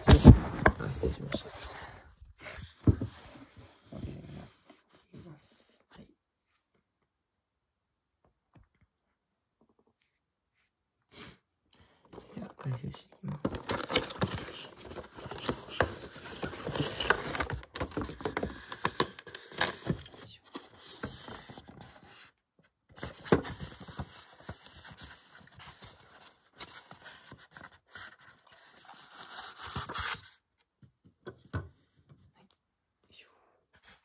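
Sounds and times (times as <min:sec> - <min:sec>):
cardboard and styrofoam handling: 0:13.4 - 0:22.3.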